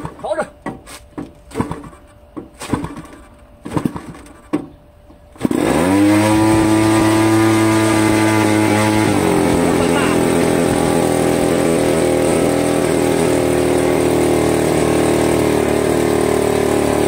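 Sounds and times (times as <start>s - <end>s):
model engine idling loudly: 5.6s - 17.0s.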